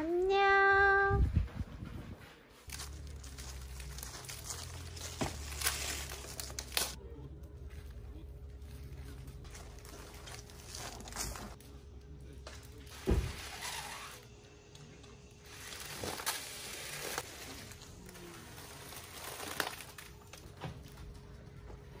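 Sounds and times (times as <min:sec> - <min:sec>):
foil balloons crinkling: 0:02.6 - 0:07.0, 0:07.7 - 0:11.7, 0:15.4 - 0:21.4.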